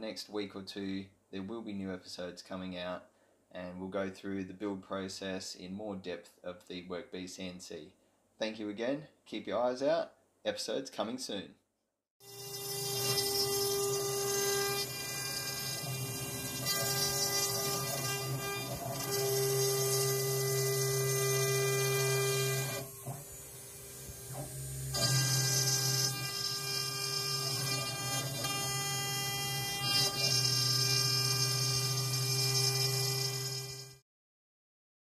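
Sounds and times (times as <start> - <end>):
cnc router spindle whining hum: 12.3 - 34.0.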